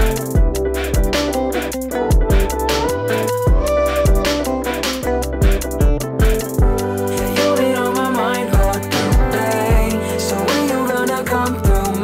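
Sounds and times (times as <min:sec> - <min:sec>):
kick drum beat: 0:00.0 - 0:01.4, 0:02.1 - 0:02.9, 0:03.5 - 0:04.5, 0:05.3 - 0:07.4, 0:08.6 - 0:10.0, 0:11.6 - 0:12.0.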